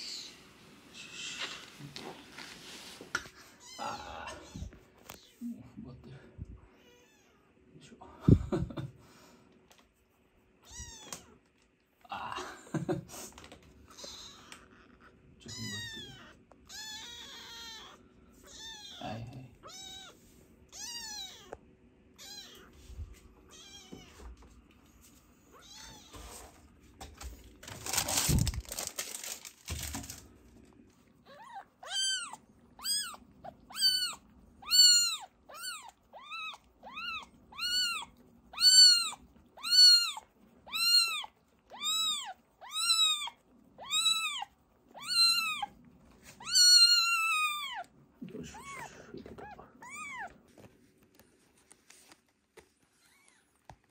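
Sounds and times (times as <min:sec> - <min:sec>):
kitten mewing: 0:03.6 - 0:04.8, 0:13.9 - 0:21.6, 0:31.2 - 0:45.8, 0:46.4 - 0:50.4.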